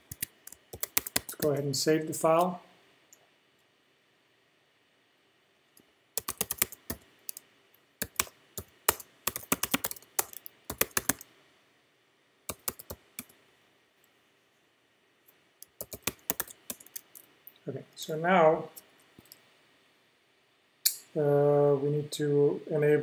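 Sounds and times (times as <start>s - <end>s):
typing on computer keyboard: 0.0s - 1.5s, 6.2s - 7.4s, 8.0s - 11.2s, 12.5s - 13.3s, 15.7s - 17.3s.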